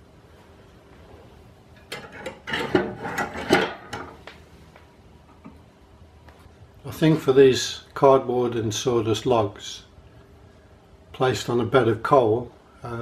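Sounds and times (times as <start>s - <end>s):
clicks knocks and scrapes of stove: 1.8s - 4.2s.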